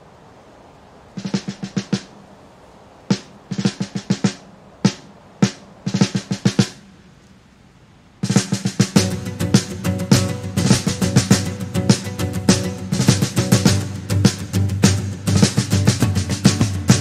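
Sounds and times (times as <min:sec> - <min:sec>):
snare drum rolls and fills: 0:01.1 - 0:02.2, 0:03.1 - 0:06.9, 0:08.2 - 0:17.0
rock band playing: 0:08.4 - 0:17.0.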